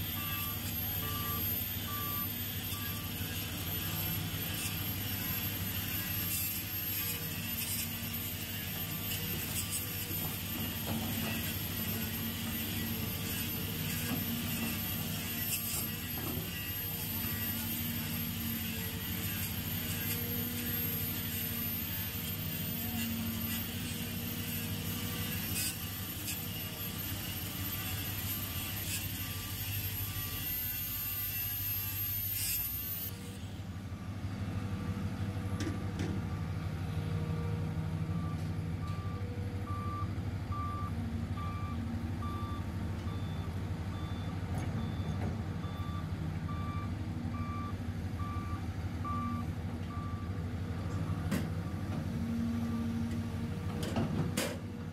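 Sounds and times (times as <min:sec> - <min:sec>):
excavator diesel engine running: 0:33.7 - 0:54.9
backup alarm beeping: 0:38.2 - 0:50.2.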